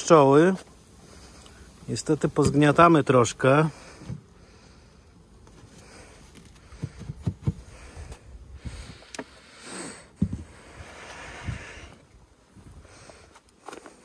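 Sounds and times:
beehive parts knocking and rustling: 0:00.1 - 0:09.4, 0:10.1 - 0:10.9.

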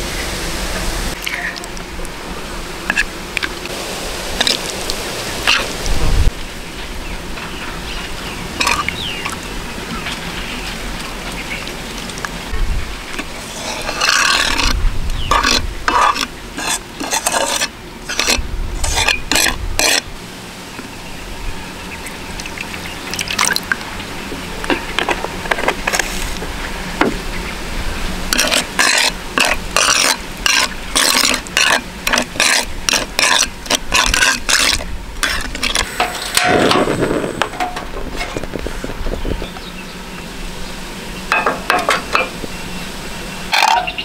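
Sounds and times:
metal spoon scraping frying pan: 0:01.2 - 0:01.7, 0:02.9 - 0:03.5, 0:08.6 - 0:08.9, 0:13.1 - 0:20.1, 0:28.3 - 0:38.5, 0:43.5 - 0:44.0.

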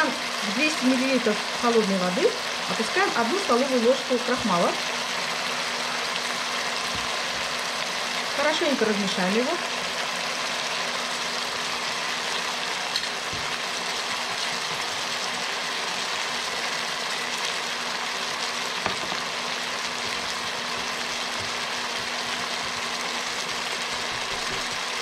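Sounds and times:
vegetables sizzling in oil: 0:00.0 - 0:25.0.

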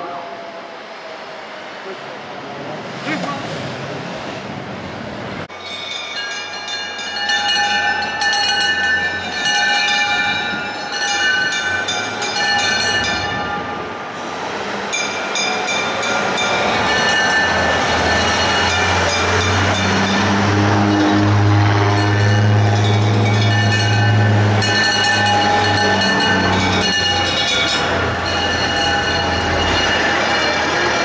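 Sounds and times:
fire engine bell ringing: 0:05.5 - 0:13.9, 0:14.9 - 0:31.0.

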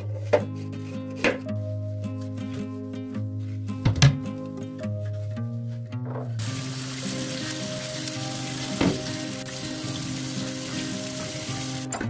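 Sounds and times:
tap water running into a sink: 0:06.4 - 0:11.9
splash or knock: 0:08.7 - 0:09.2.

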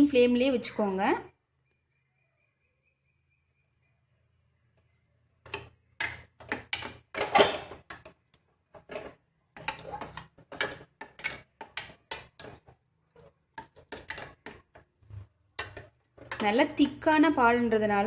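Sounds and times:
spoon scraping and clinking in pan: 0:05.4 - 0:17.7.

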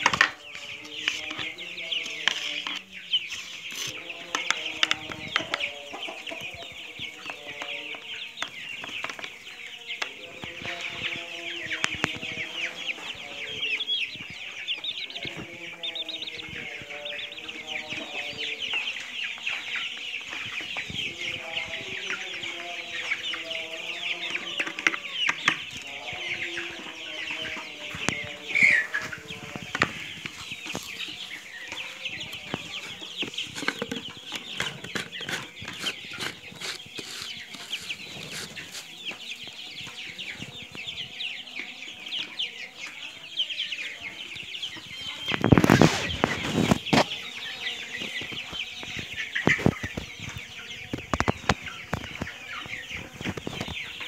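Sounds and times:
chickens clucking: 0:00.0 - 0:54.0
chicks peeping: 0:00.0 - 0:54.0.

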